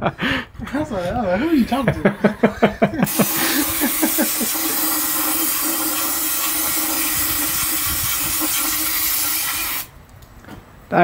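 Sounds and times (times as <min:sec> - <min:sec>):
aerosol spray hiss: 0:03.1 - 0:09.9.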